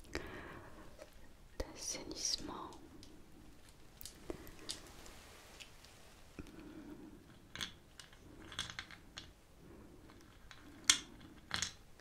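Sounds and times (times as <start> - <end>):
soft clicks and crinkles: 0.9 - 12.0
hands handling small objects: 1.0 - 6.6.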